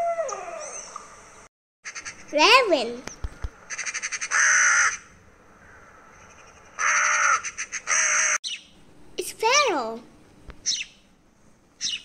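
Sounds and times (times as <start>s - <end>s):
crow harsh calls: 3.7s - 8.4s.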